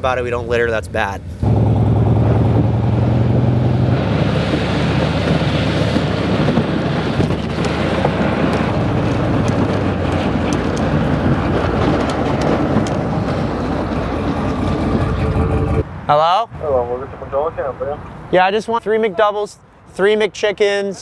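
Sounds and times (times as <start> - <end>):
vehicle rumble and rushing: 0.0 - 18.5.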